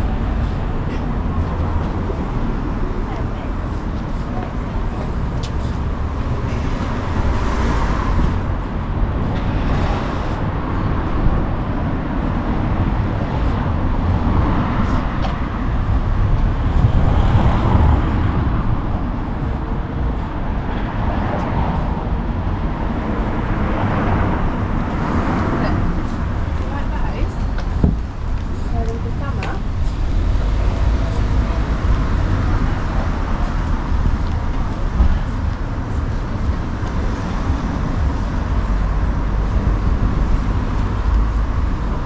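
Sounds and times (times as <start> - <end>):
road traffic rumble: 0.0 - 42.0
vehicles passing: 0.0 - 42.0.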